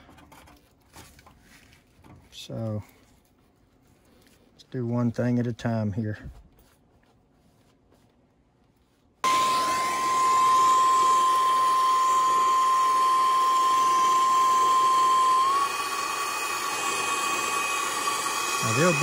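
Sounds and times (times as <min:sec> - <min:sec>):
high steady whistle: 0:09.2 - 0:19.0.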